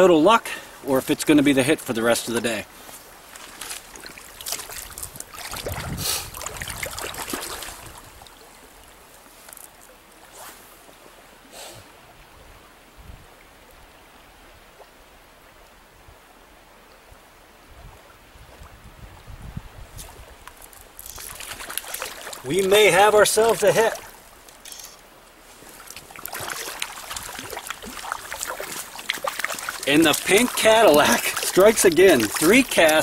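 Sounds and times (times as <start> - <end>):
stream flowing over riffles: 0.0 - 33.0
wading steps splashing water: 0.6 - 10.4, 20.0 - 33.0.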